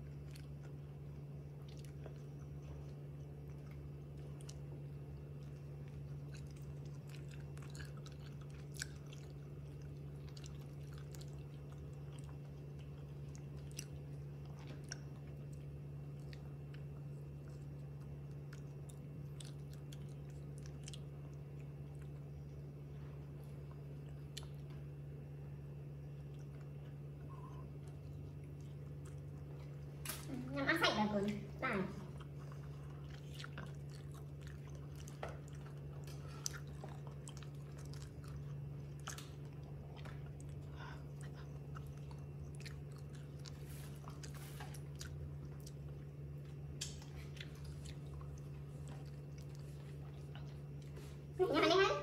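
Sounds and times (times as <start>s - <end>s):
steady low hum: 0.0s - 52.0s
monkey chewing food: 3.4s - 22.3s.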